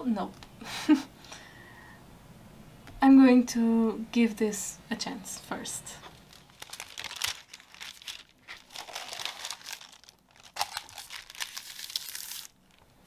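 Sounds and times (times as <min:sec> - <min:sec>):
paper crinkling and rustling: 0:06.0 - 0:12.9.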